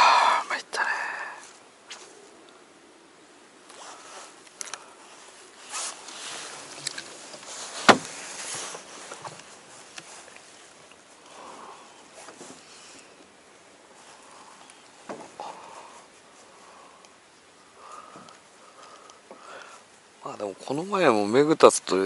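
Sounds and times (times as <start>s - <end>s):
tackle rustling: 3.7s - 11.2s.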